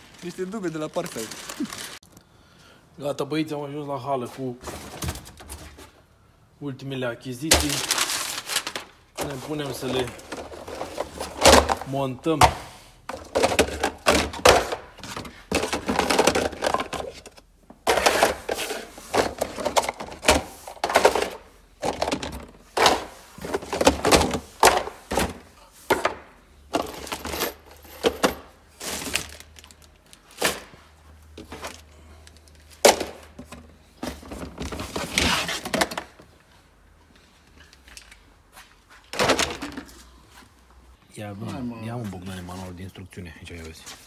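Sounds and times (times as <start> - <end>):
plastic bins clattering: 0.0 - 2.0, 4.5 - 6.0, 7.3 - 36.4, 39.0 - 40.1.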